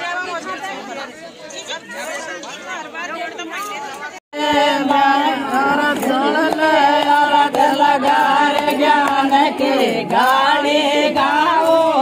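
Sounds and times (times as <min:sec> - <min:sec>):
women singing folk song: 0:04.3 - 0:12.0.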